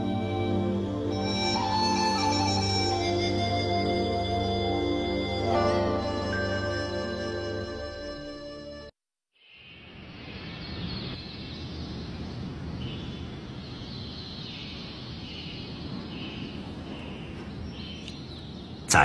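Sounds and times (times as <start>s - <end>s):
birds chirping: 9.5s - 19.0s.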